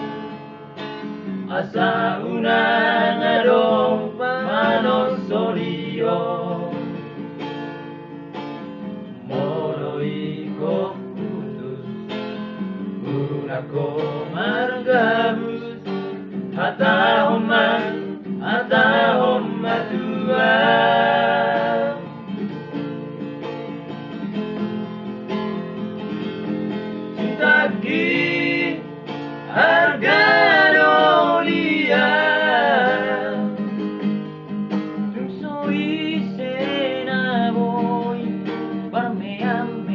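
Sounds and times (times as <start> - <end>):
strummed acoustic guitar: 0.0 - 39.9
men singing together: 1.5 - 6.9, 9.3 - 11.7, 13.1 - 22.1, 27.2 - 28.9, 29.5 - 33.7, 35.2 - 39.9.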